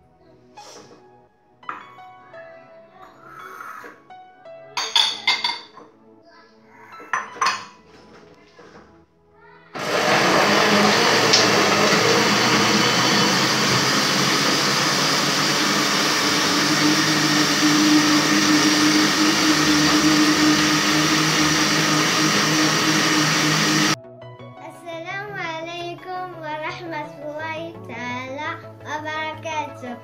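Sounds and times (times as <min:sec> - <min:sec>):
blender whirring: 0:09.8 - 0:24.0.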